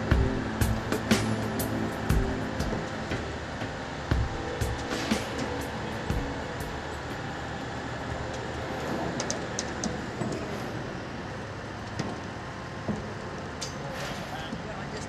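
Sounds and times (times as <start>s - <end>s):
heavy vehicle engine rumbling: 0.0s - 15.0s.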